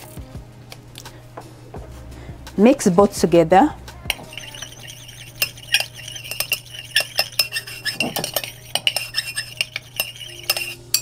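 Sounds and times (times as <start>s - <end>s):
stirrer clinking against glass: 4.1s - 11.0s.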